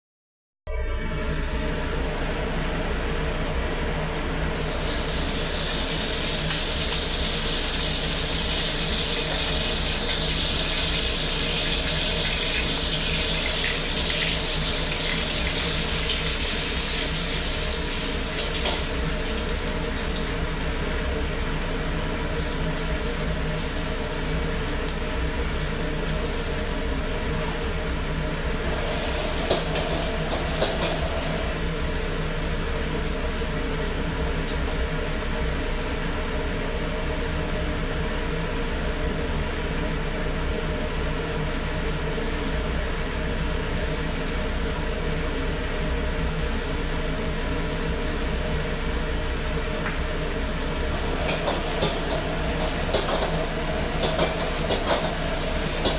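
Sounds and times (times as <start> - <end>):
egg and noodles sizzling: 4.4 - 35.9, 40.8 - 55.9
exhaust hood roaring: 22.6 - 33.4, 47.5 - 55.9.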